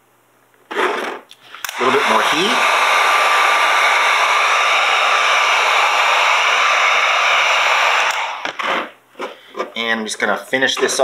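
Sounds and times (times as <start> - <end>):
heat gun blowing with thin whine: 1.4 - 9.0.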